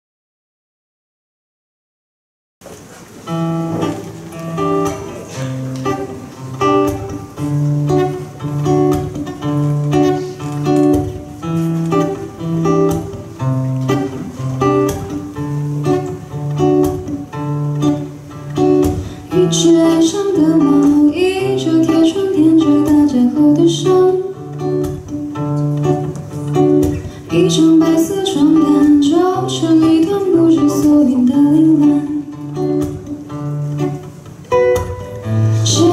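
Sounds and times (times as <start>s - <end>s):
fingerpicked acoustic guitar: 2.7s - 35.9s
woman singing into microphone: 19.2s - 25.0s, 27.0s - 33.0s, 35.3s - 35.9s.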